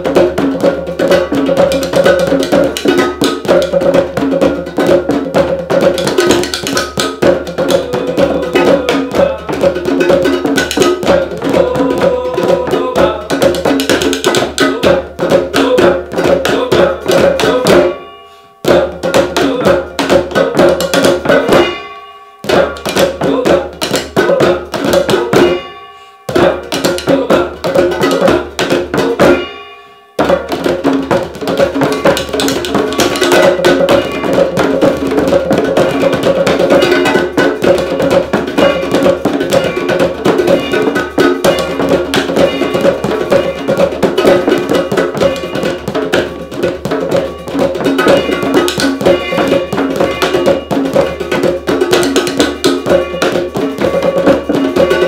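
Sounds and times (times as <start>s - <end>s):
mallets striking household objects: 0.0s - 55.0s
ringing tone: 21.2s - 22.8s.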